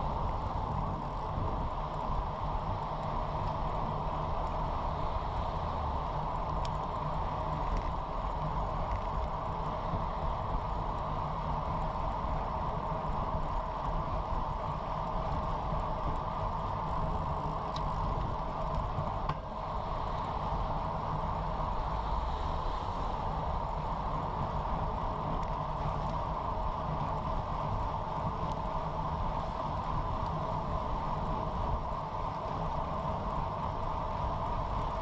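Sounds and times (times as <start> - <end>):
bicycle road noise: 0.0 - 35.0.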